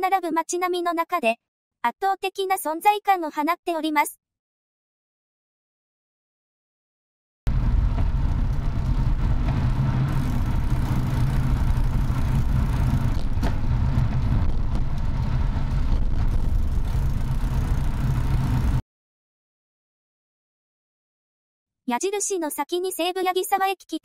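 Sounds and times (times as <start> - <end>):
car engine and road noise: 7.5 - 18.8.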